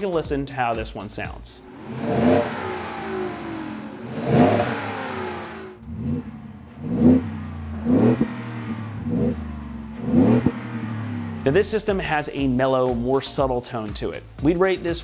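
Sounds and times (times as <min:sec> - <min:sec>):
car engine revving: 0:01.5 - 0:12.6
engine throttle blips: 0:01.5 - 0:12.6.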